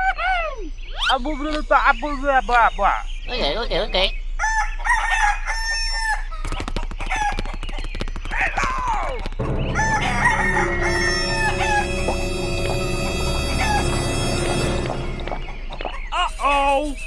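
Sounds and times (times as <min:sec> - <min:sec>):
rooster clucking and crowing: 0:04.4 - 0:06.4.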